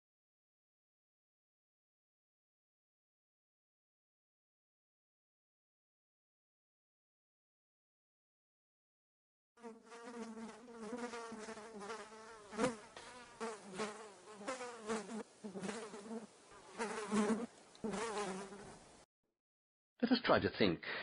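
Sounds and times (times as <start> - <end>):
fly buzzing: 9.6 - 18.9.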